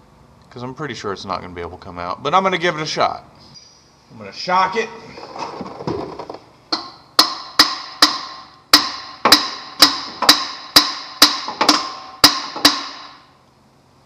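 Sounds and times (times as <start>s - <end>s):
hammer striking metal: 6.7s - 13.3s.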